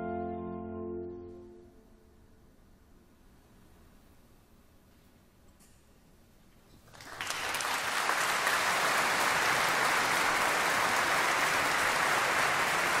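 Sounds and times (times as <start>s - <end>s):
audience applause: 6.8s - 13.0s.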